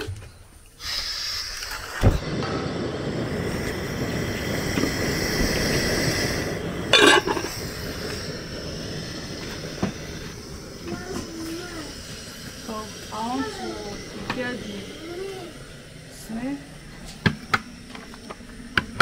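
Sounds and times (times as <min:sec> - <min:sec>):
gas burner flame rushing: 0:00.0 - 0:19.0.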